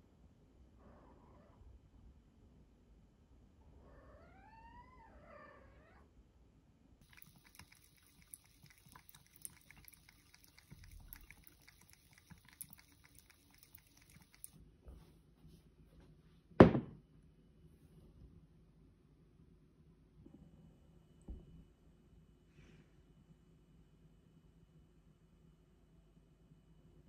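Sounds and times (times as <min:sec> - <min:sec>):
cat lapping water: 0:07.0 - 0:14.6
tap water running into sink: 0:07.0 - 0:14.6
loud sharp knock: 0:16.6 - 0:17.0.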